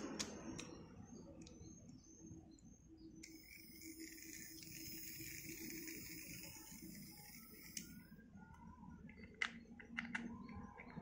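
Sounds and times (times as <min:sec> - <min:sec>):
faint birds chirping: 0:00.2 - 0:11.0.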